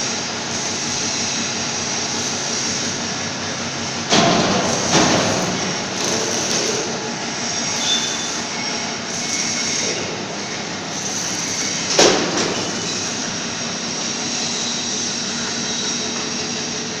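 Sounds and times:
workshop machinery running: 0.0 - 17.0.

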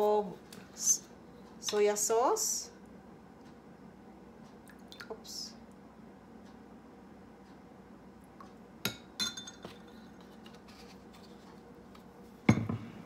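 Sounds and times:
metal spoon clinking on glass: 8.9 - 9.9
dull knock on a counter: 12.5 - 12.9.

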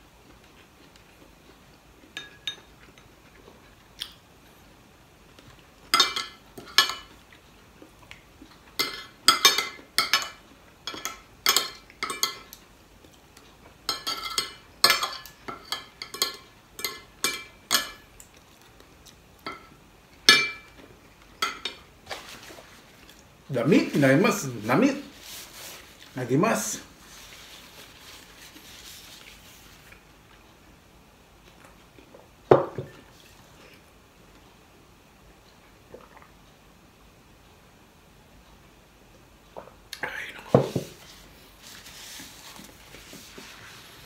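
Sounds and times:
cutlery clinking on ceramic plate: 2.2 - 2.7, 6.0 - 7.2, 8.8 - 12.6, 13.9 - 18.1, 19.5 - 20.8.

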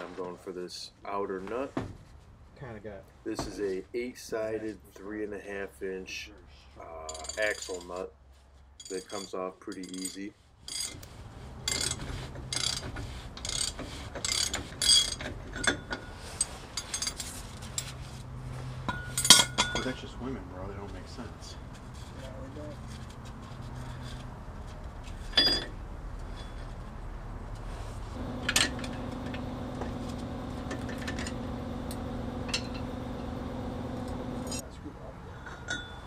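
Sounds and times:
metallic clinks of tools: 7.0 - 8.1, 8.8 - 11.0, 14.3 - 17.9, 18.9 - 20.0, 35.4 - 36.0
ratchet wrench clicking: 11.7 - 15.8
steady tonal hum: 28.1 - 36.0.

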